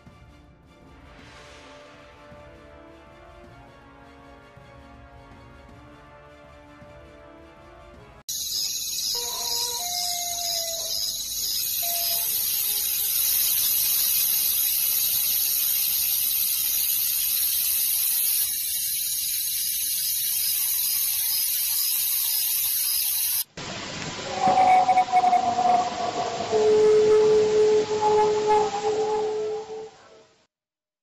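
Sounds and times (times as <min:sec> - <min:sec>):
faint repeating chirp: 0:08.3 - 0:23.4
high-pitched hiss: 0:08.3 - 0:29.6
faint falling tones: 0:24.0 - 0:30.3
pitched wavering sound: 0:24.2 - 0:30.1.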